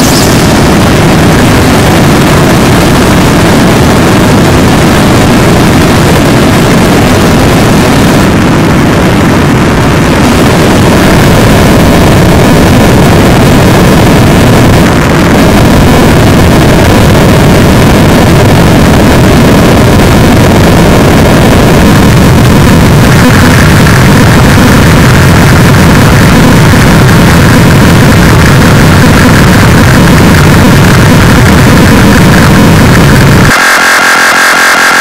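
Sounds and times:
distorted synth noise: 0:00.0 - 0:35.0.

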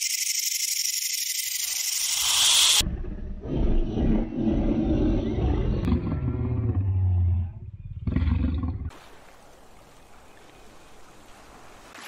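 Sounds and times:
lion grunting: 0:02.8 - 0:08.9
lion roaring: 0:02.8 - 0:08.9.

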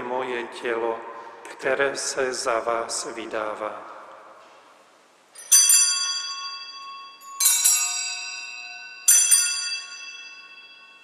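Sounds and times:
small bells ringing: 0:05.4 - 0:11.0.

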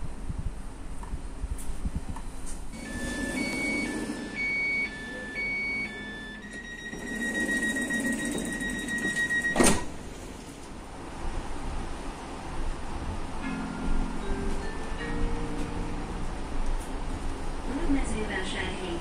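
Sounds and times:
alternating two-pitch warning beeps: 0:02.8 - 0:09.8
continuous warning tone: 0:02.8 - 0:10.0
sliding doors shutting thump: 0:02.8 - 0:10.7.

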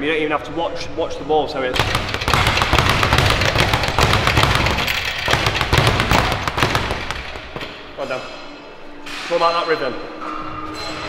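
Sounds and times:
speed bag being punched: 0:01.8 - 0:07.7.

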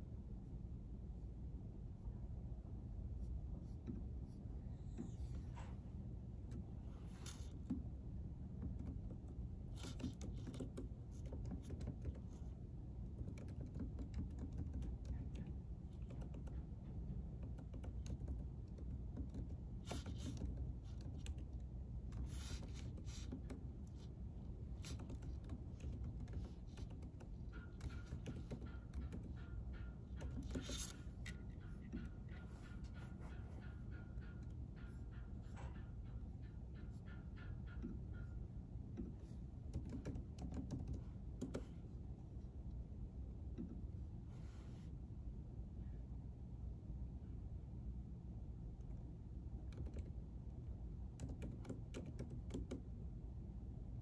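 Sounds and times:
low background hum: 0:00.0 - 0:54.0
keyboard typing clicks: 0:13.0 - 0:16.7, 0:24.8 - 0:32.1, 0:39.7 - 0:41.7, 0:51.2 - 0:52.8.

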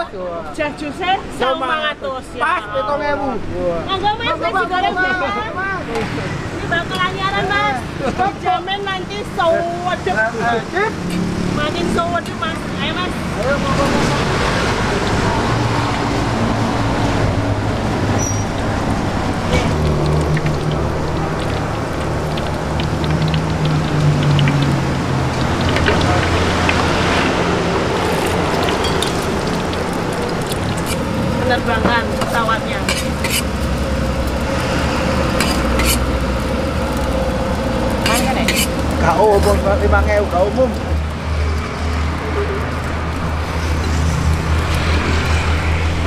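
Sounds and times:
batter sizzling in hot oil: 0:12.1 - 0:46.0.

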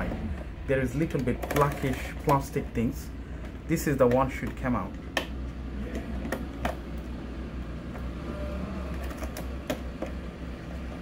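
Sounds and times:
plastic clips clicking and snapping: 0:01.0 - 0:02.6.

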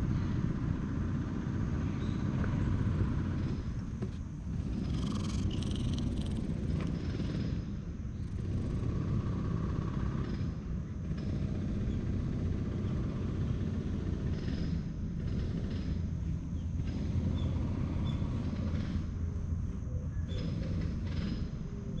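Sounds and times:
steady low rumble: 0:00.0 - 0:19.7
cat purring: 0:03.6 - 0:07.5, 0:08.2 - 0:09.1.

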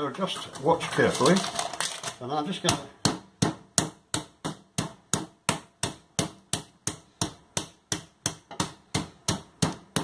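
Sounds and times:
meat hammer thudding on board: 0:02.6 - 0:10.0.

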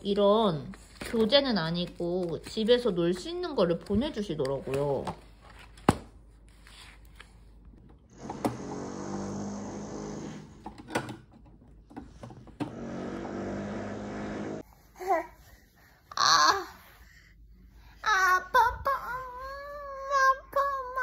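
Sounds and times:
small motor machine whirring: 0:08.1 - 0:10.6, 0:12.7 - 0:14.6.

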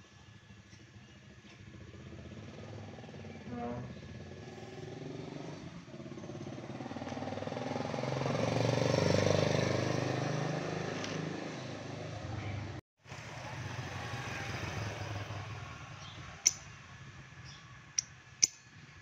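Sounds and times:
vehicle engine passing: 0:01.7 - 0:17.9.

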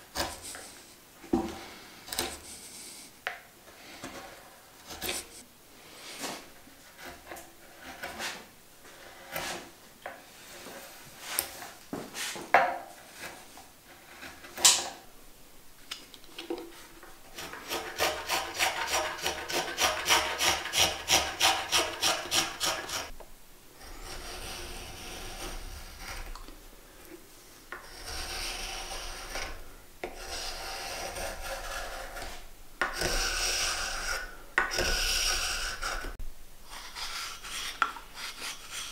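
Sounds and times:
gouge scraping wood: 0:04.0 - 0:05.4, 0:06.9 - 0:09.8, 0:17.3 - 0:23.1, 0:23.8 - 0:26.4, 0:27.7 - 0:38.9.

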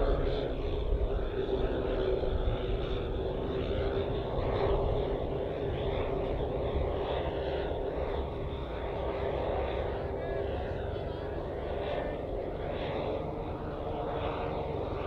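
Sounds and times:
model aircraft engines droning: 0:00.0 - 0:15.0.

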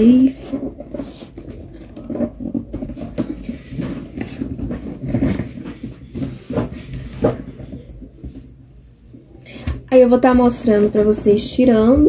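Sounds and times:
cardboard rubbing and rustling: 0:00.0 - 0:08.6.

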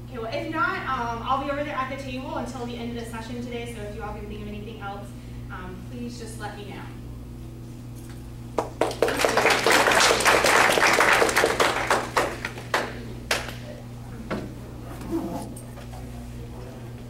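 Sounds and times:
audience applause: 0:08.6 - 0:13.6.

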